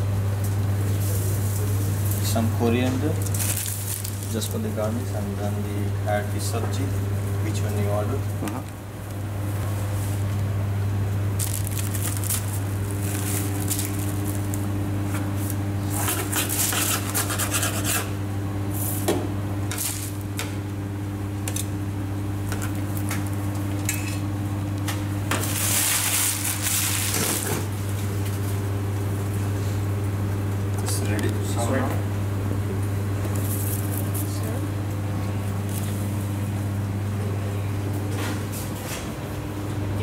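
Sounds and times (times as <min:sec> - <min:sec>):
steady low hum: 0:00.0 - 0:40.0
paper rustling: 0:11.4 - 0:14.6.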